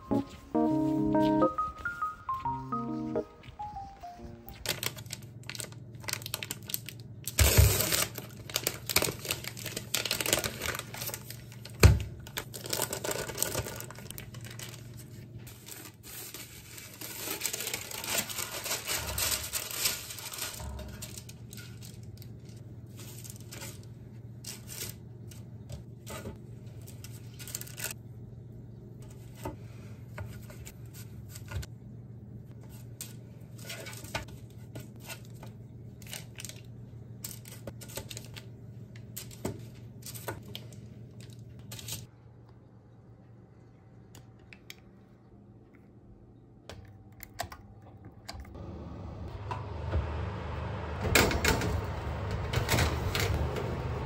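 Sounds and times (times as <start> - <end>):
plastic wrapper crinkling and tearing: 4.5 - 23.8, 27.1 - 28.0, 36.0 - 39.4
baking paper rustling: 4.5 - 28.0.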